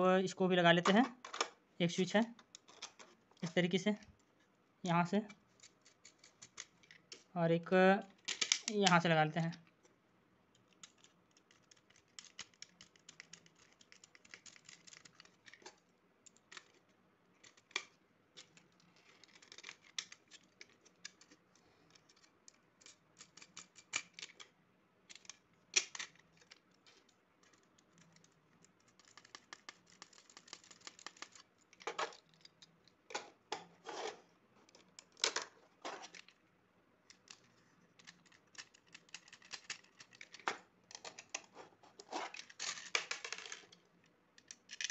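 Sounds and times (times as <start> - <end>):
plastic clicks and scrapes: 5.3 - 7.3, 10.5 - 36.4, 37.0 - 44.9.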